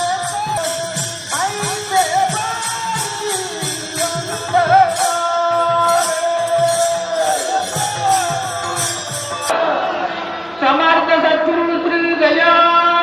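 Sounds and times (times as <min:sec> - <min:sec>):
jingling percussion: 0:00.0 - 0:09.5
devotional melody: 0:00.0 - 0:10.2.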